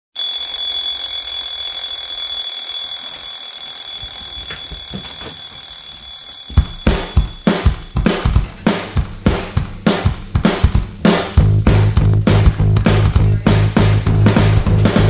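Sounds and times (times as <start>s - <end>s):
phone alarm ringing: 0.2s - 8.2s
loud drum beat music: 6.5s - 15.0s.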